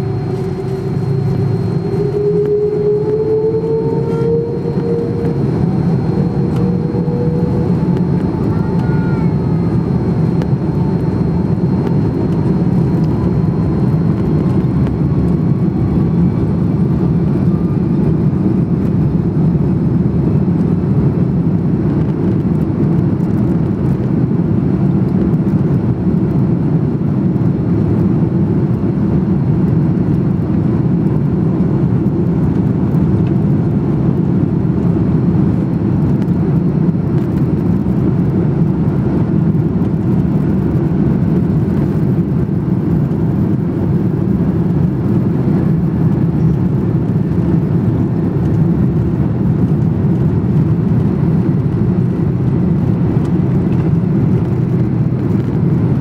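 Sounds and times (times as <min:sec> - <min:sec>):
faint high whine: 0:00.0 - 0:19.0
jet engine cabin rumble: 0:00.0 - 0:56.0.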